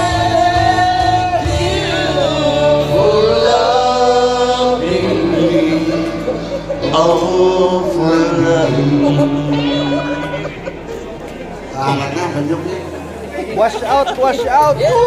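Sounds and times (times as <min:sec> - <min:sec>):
man singing into microphone: 0:00.0 - 0:10.9
backing music: 0:00.0 - 0:13.6.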